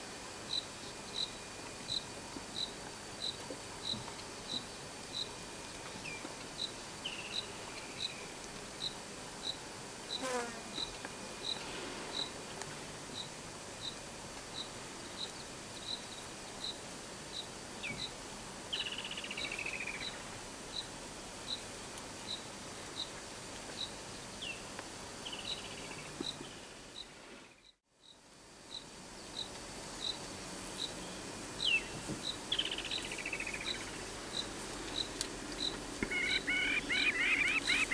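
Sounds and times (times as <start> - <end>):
insect chirping: 0.4 - 5.4, 6.0 - 12.4, 28.0 - 37.9
short falling calls: 36.1 - 37.9.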